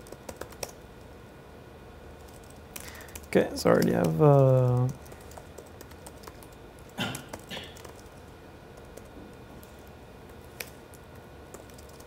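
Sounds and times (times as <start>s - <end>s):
keyboard typing clicks: 0.0s - 0.8s, 2.2s - 8.2s, 11.5s - 12.0s.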